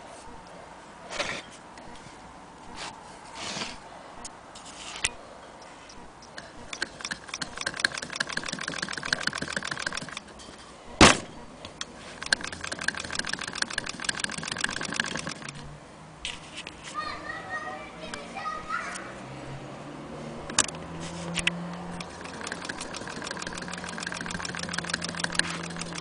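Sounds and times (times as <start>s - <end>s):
sewing machine clicking: 6.4s - 10.3s, 12.2s - 15.6s, 22.0s - 26.0s.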